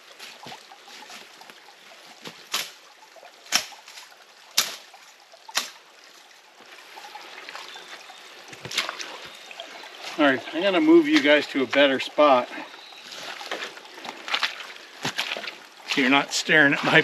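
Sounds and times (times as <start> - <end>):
water trickling: 0.0 - 17.0
sticks snapping: 2.5 - 2.8, 3.5 - 4.0, 4.6 - 4.9, 5.5 - 5.8.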